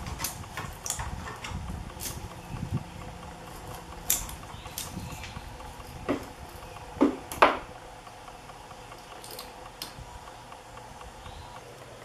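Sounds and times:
wire snapping and scraping on metal: 0.0 - 2.2, 3.5 - 5.4.

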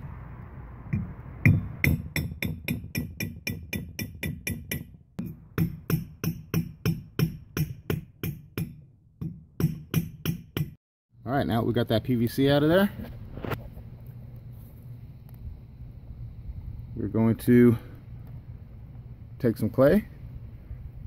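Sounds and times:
sledge hammer striking steel bar: 0.9 - 10.8.

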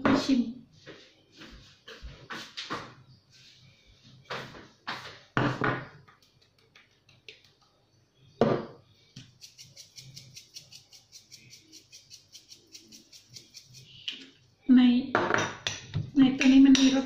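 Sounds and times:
spice grinder clicking: 9.3 - 13.9.

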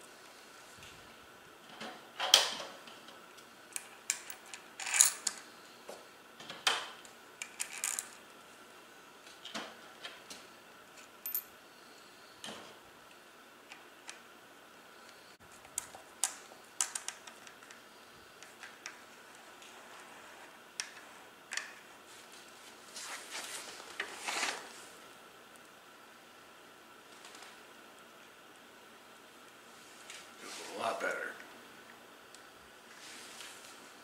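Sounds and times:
metallic clicks of small parts: 15.6 - 17.8.

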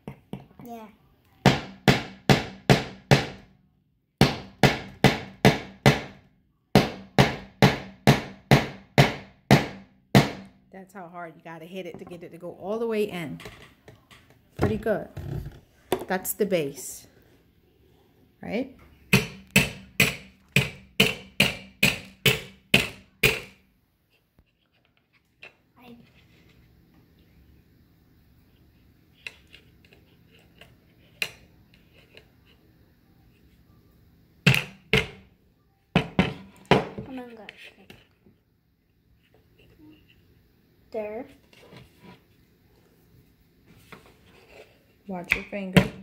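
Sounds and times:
hammer striking nail into wood: 1.5 - 3.4, 4.2 - 6.2, 6.8 - 10.5, 19.1 - 23.6, 34.5 - 35.2
hammer driving nail into wood: 19.1 - 23.6.

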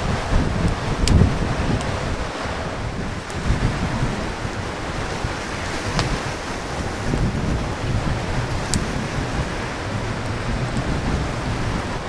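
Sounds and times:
sea surf washing on shore: 0.0 - 12.0
wind buffeting microphone: 0.0 - 12.0
faint sharp clicks: 1.0 - 1.2, 5.9 - 6.2, 8.7 - 8.9.

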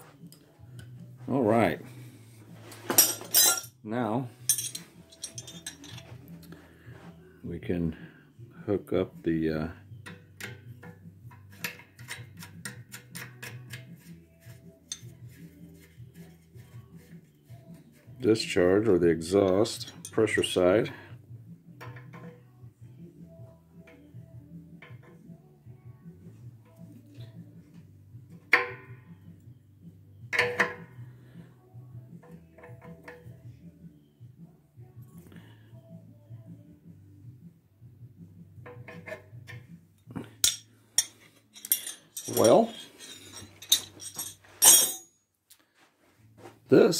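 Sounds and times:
wrenches clanking on metal: 2.8 - 3.8, 4.4 - 6.2, 19.3 - 20.6, 38.7 - 45.2.

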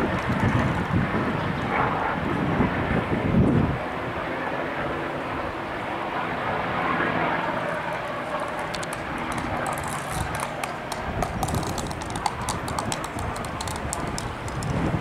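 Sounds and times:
helicopter rotor drone: 0.0 - 15.0
sharp high clicks: 8.0 - 14.9.

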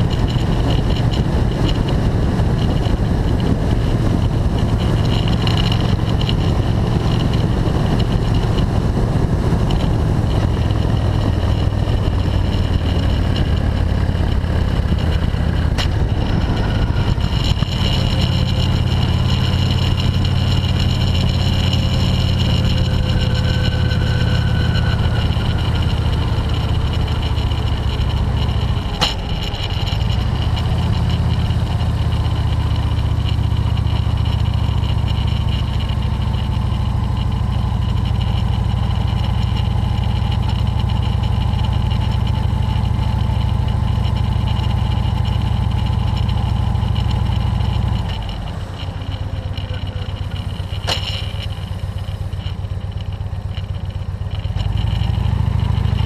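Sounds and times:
motorcycle engine running: 0.0 - 56.0
wind and road rush: 0.0 - 56.0
sharp click: 46.0 - 55.1.

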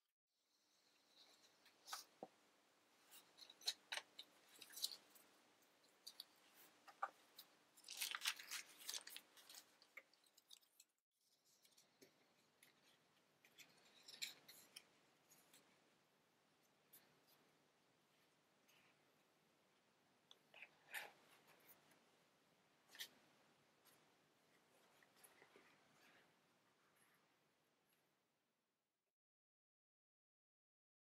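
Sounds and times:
paper rustling: 3.1 - 15.6.

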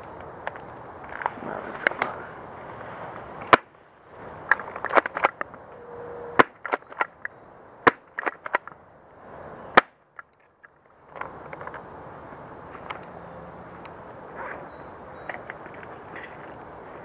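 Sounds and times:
brush rustling: 1.0 - 5.4
shotgun racking clicks: 4.5 - 5.4.

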